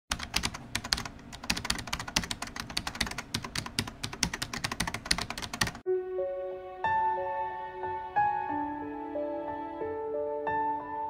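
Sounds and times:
computer keyboard typing: 0.1s - 5.8s.

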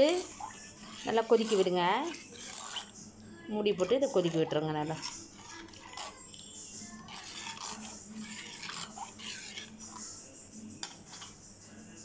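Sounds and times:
ladle scraping clay pot: 0.0s - 11.4s.

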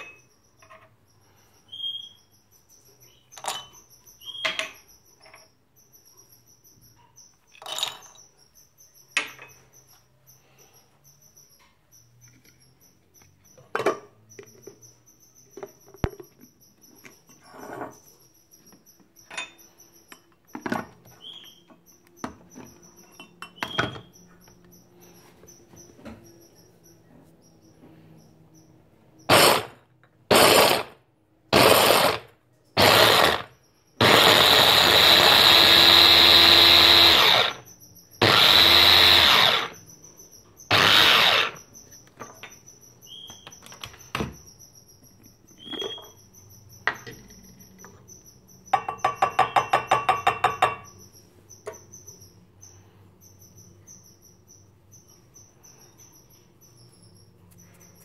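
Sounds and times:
electric food chopper grinding: 29.3s - 37.6s, 38.2s - 39.8s, 40.7s - 41.6s.

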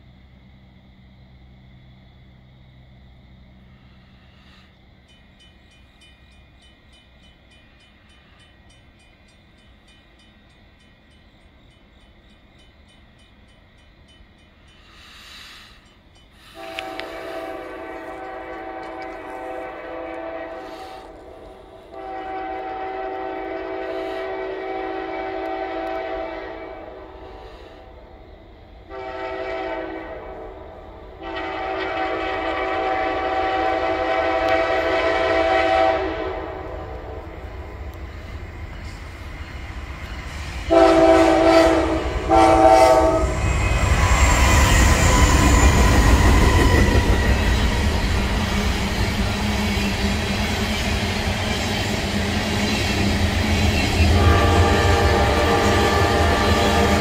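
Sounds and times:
locomotive air horn blasts: 16.4s - 27.3s, 28.9s - 30.6s, 31.2s - 37.3s, 40.7s - 44.3s, 54.0s - 57.0s.

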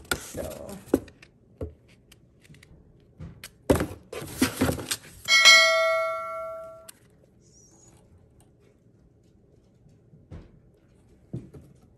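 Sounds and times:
bright bell-like ding: 5.3s - 6.9s.

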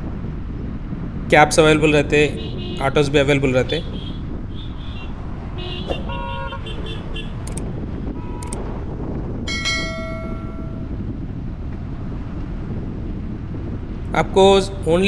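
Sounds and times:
low road traffic rumble: 0.0s - 15.0s
vehicle horns honking: 2.2s - 7.4s, 8.2s - 8.6s.

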